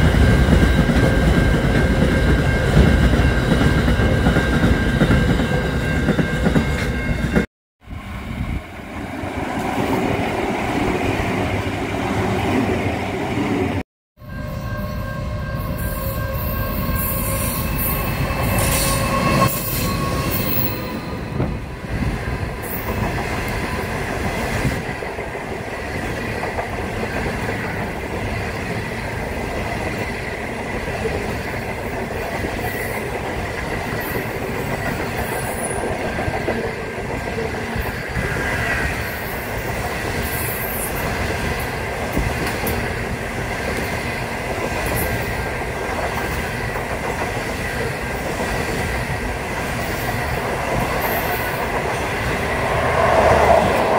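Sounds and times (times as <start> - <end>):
train rumbling and clattering on rails: 0.0 - 53.9
held horn-like tone: 14.2 - 21.4
high wheel squeal: 14.2 - 21.7.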